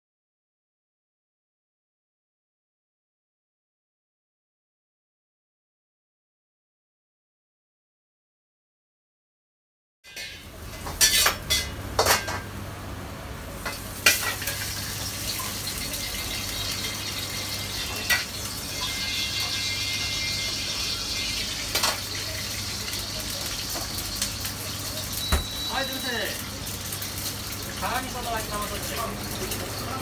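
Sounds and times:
metal ladle scraping wok: 0:10.1 - 0:12.3
sharp ladle clanks: 0:10.1 - 0:12.5
vegetables sizzling in wok: 0:10.1 - 0:30.0.

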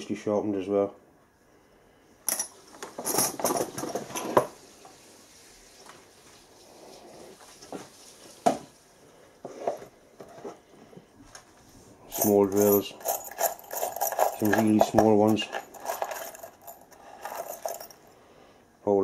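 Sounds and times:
metal drill bits clinking: 0:12.1 - 0:18.1.

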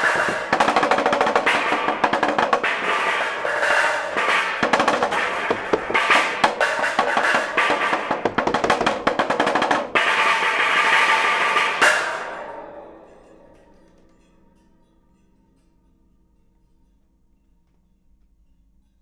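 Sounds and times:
metal sheets struck ringing: 0:00.0 - 0:14.2.

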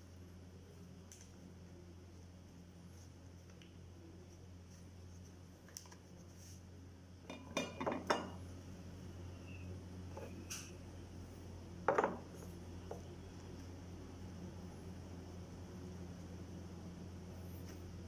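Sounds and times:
low steady hum: 0:00.0 - 0:18.0
dishes and cutlery clinking: 0:07.3 - 0:08.4.

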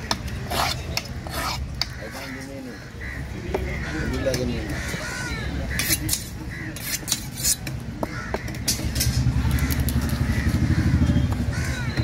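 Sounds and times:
motor engine rumbling: 0:07.7 - 0:12.0.

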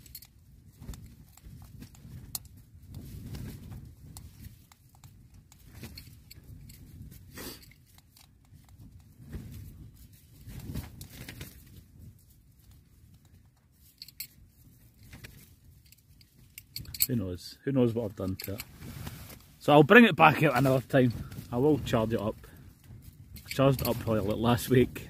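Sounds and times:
faint rustling: 0:18.0 - 0:25.0.

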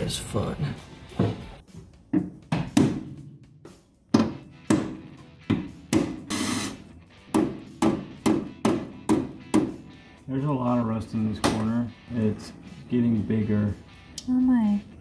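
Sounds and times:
hammer striking chisel on metal: 0:07.3 - 0:09.8.

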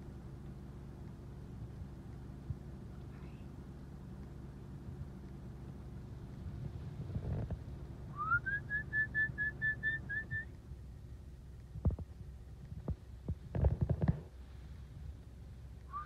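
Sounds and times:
steady low hum: 0:00.0 - 0:16.0
person whistling: 0:08.2 - 0:10.5.

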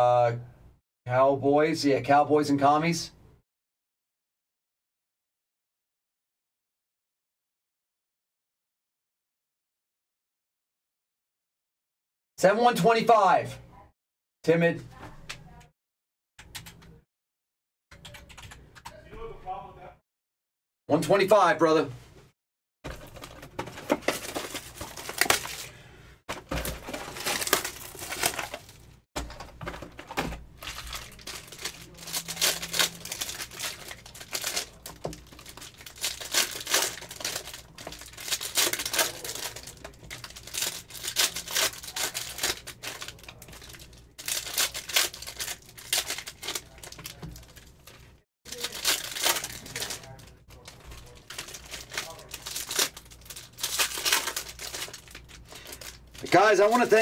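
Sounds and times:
card packs torn and crinkled: 0:22.9 - 0:57.0.

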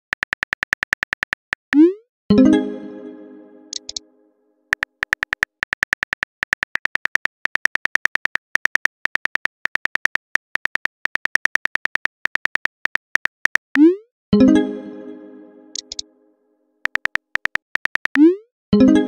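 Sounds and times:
phone keyboard typing clicks: 0:00.0 - 0:01.8, 0:03.7 - 0:04.0, 0:04.7 - 0:13.9, 0:15.7 - 0:16.0, 0:16.8 - 0:18.3.

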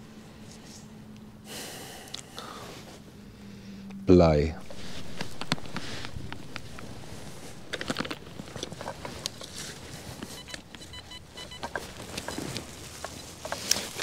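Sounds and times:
metal detector high beeps: 0:10.2 - 0:12.6.

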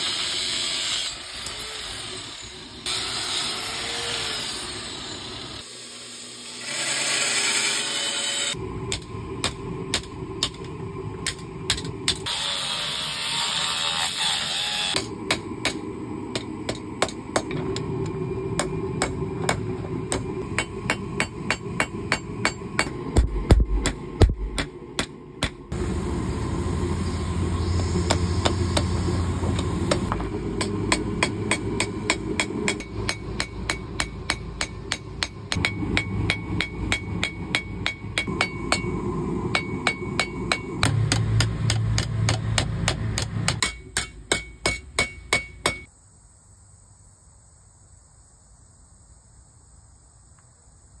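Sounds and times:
hammer striking steel on anvil: 0:08.9 - 0:12.3, 0:14.9 - 0:17.9, 0:18.6 - 0:25.7, 0:29.6 - 0:45.9
low rumble: 0:17.6 - 0:43.5.

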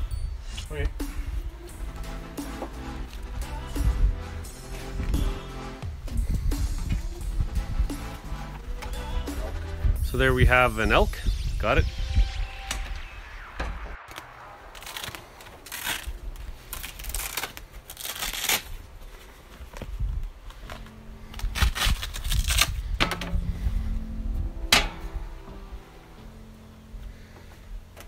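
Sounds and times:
wind rumble on microphone: 0:03.1 - 0:05.2, 0:05.8 - 0:08.8, 0:09.7 - 0:13.0, 0:19.8 - 0:20.4, 0:21.3 - 0:26.0.

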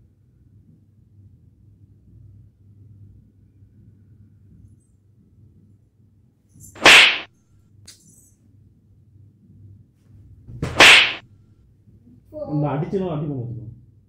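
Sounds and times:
loud slap: 0:06.8 - 0:07.3, 0:10.6 - 0:11.2.

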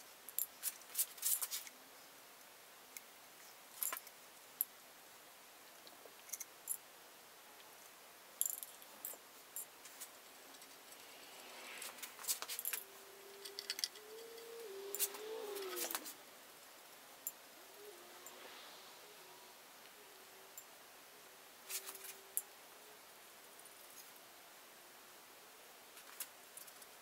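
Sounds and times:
faint pitched tone: 0:10.4 - 0:23.0.

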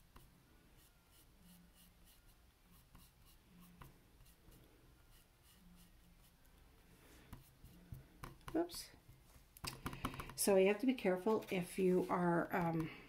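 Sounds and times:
paintbrush scratching on canvas: 0:00.0 - 0:06.4, 0:07.2 - 0:08.7.

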